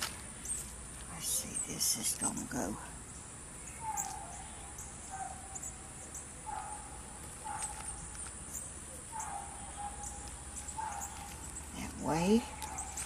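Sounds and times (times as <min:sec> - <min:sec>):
insects trilling: 0:00.0 - 0:13.0
faint high bird chirps: 0:03.6 - 0:13.0.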